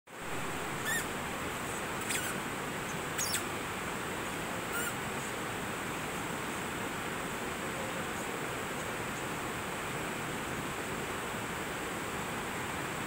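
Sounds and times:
river water rushing over rocks: 0.1s - 13.0s
short high bird chirps: 0.8s - 1.1s, 2.0s - 2.4s, 3.2s - 3.5s, 4.7s - 5.0s.

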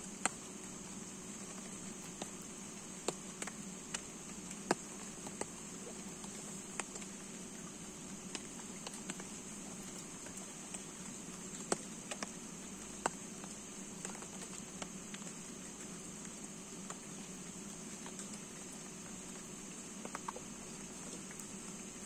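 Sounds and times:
raindrops pattering on plastic: 0.0s - 22.0s
steady hiss of rain: 0.0s - 22.0s.

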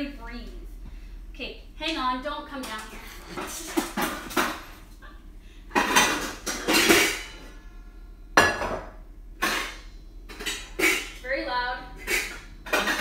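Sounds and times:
pots and pans clanking: 2.6s - 4.9s, 5.7s - 7.6s, 8.4s - 11.2s, 11.9s - 13.0s.

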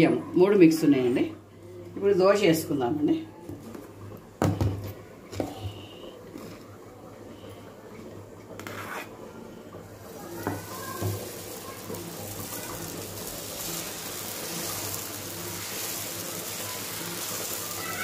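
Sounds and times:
batter sizzling on griddle: 9.8s - 18.0s.

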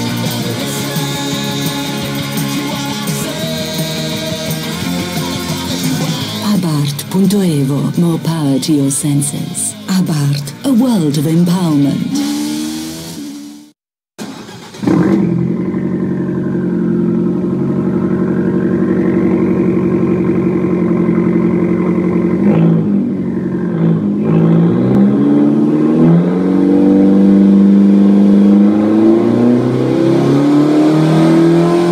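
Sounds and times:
car engine revving: 0.0s - 31.9s
car engine starting: 0.0s - 31.9s
car engine idling: 14.2s - 29.0s.

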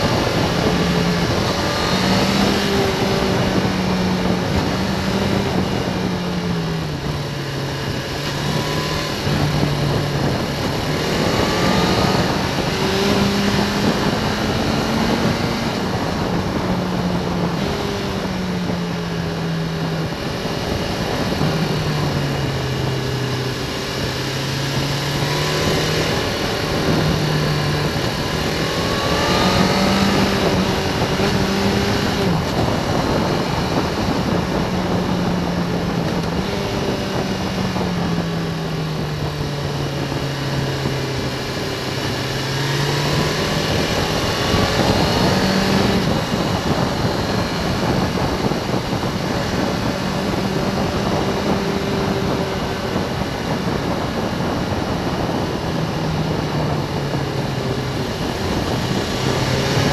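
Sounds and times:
motorcycle engine running: 0.0s - 59.9s
wind and road noise: 0.0s - 59.9s.

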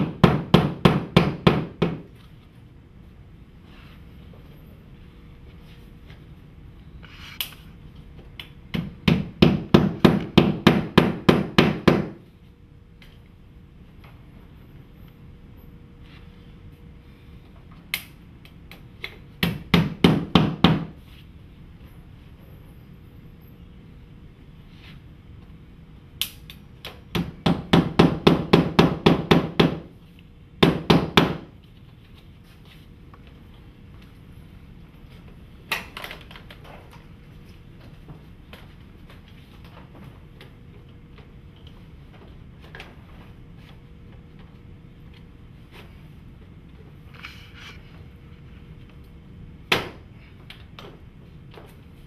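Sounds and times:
hammer nailing panel: 0.0s - 2.1s, 8.7s - 12.2s, 19.4s - 21.0s, 27.1s - 29.9s, 30.6s - 31.5s.

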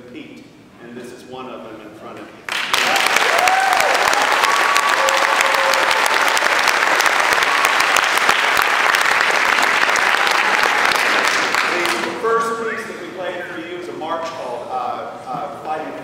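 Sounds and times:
audience applauding: 2.5s - 12.2s.

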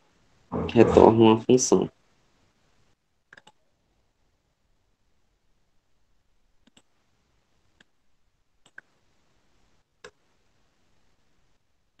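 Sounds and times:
keyboard and mouse clicks: 3.3s - 3.6s, 6.6s - 6.9s, 8.6s - 8.9s.

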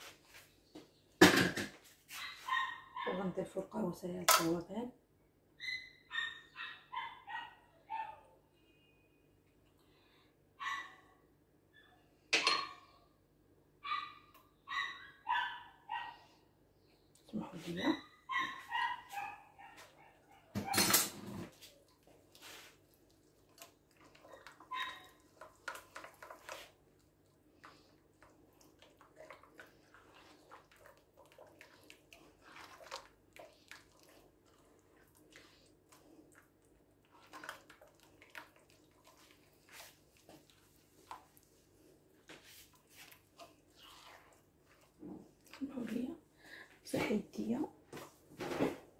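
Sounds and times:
dog barking and yelping: 2.1s - 3.2s, 5.6s - 8.4s, 10.6s - 12.0s, 13.8s - 16.4s, 17.8s - 20.9s, 24.3s - 25.3s
hands kneading wet dough: 21.5s - 48.2s.

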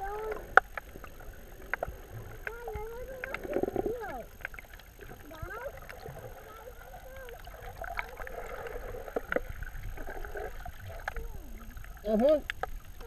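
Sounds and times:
underwater wash of moving water: 0.0s - 13.0s
muffled wavering voices: 2.1s - 4.4s, 5.0s - 9.2s, 10.0s - 12.5s.

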